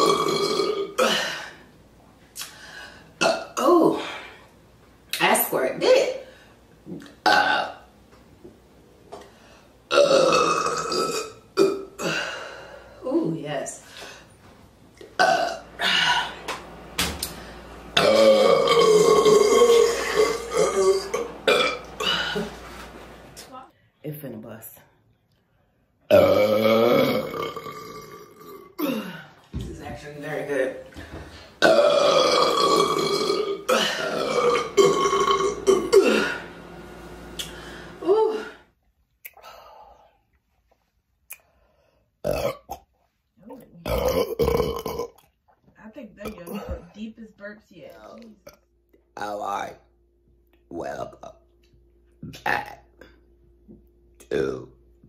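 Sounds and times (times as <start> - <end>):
woman burping: 0.0 - 1.6, 3.2 - 4.2, 7.0 - 7.9, 9.9 - 12.5, 15.2 - 16.4, 18.0 - 22.6, 26.1 - 29.3, 31.6 - 36.5, 42.2 - 42.9, 43.8 - 45.3, 46.2 - 47.0, 48.4 - 48.7, 52.2 - 53.2.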